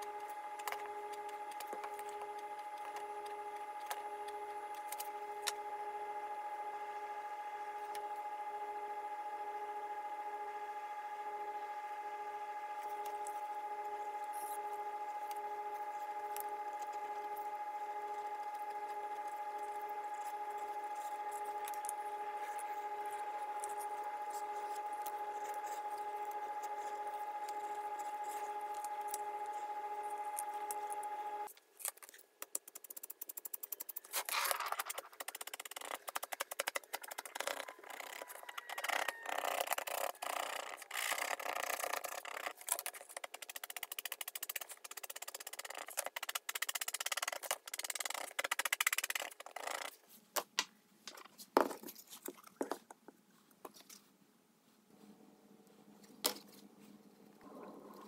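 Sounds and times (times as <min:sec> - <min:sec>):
steady hum: 0:00.0 - 0:31.6, 0:54.1 - 0:58.0
edge tool scraping leather: 0:34.0 - 0:49.9.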